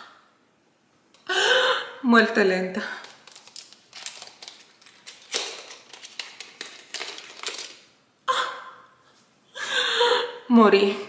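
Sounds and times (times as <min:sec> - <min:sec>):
packaging rustling: 0:03.0 - 0:07.9.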